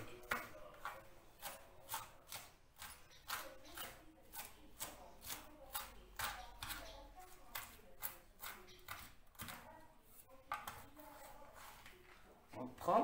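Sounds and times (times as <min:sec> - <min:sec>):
knife chopping on cutting board: 0:00.0 - 0:09.8.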